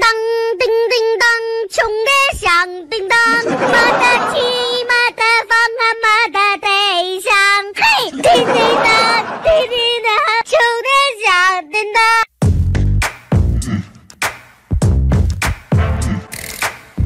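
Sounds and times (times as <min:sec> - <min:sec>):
high-pitched singing voice: 0:00.0 - 0:12.3.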